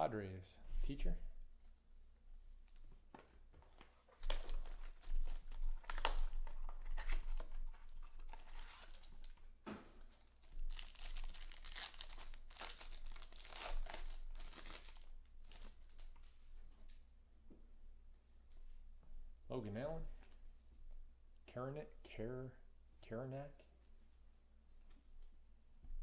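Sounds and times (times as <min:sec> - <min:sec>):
shrink wrap crinkling and tearing: 0:03.6 - 0:17.0
foil wrapper crinkling: 0:03.7 - 0:16.6.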